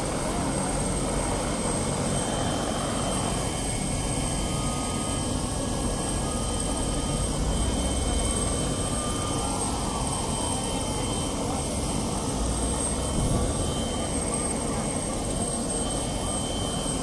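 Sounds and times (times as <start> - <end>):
helicopter engine and rotor: 0.0 - 17.0.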